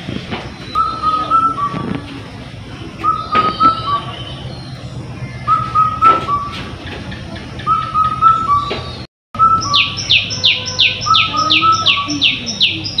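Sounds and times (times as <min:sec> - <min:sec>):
whistled bird-like phrase: 0:00.6 - 0:02.0, 0:03.0 - 0:06.6, 0:07.7 - 0:13.0.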